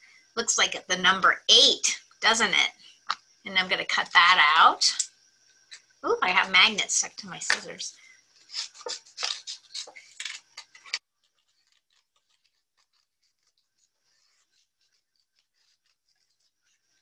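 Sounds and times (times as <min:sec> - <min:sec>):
scissors snipping paper: 0:08.5 - 0:16.9.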